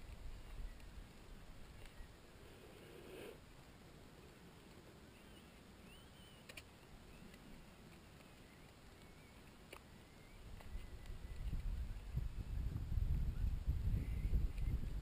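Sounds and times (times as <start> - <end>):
faint high wavering chirps: 5.1 - 12.5
small clicks: 6.3 - 11.7.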